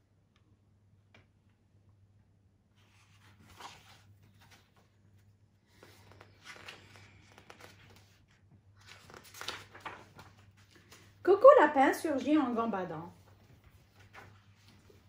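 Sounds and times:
book pages rustling: 2.8s - 11.2s, 12.2s - 15.0s.

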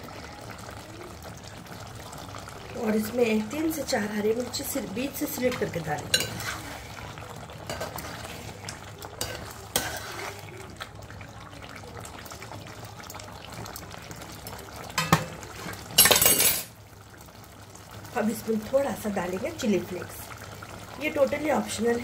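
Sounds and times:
curry sizzling: 0.0s - 22.0s
spoon scraping and clinking pot: 5.5s - 6.9s, 7.7s - 8.5s, 9.2s - 10.4s, 15.0s - 16.7s.

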